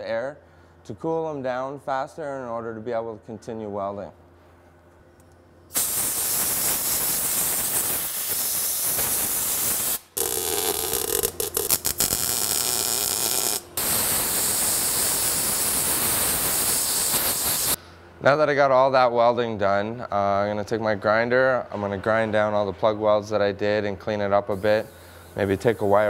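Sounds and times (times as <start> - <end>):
welder hissing: 5.7 - 17.8, 24.5 - 26.0.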